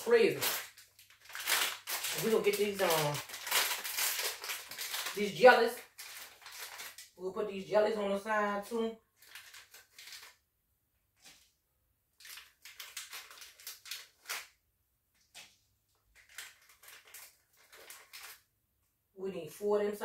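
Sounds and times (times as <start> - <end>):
plastic packaging crinkling: 0.0 - 7.2, 9.2 - 10.4, 12.2 - 14.6, 16.1 - 18.5.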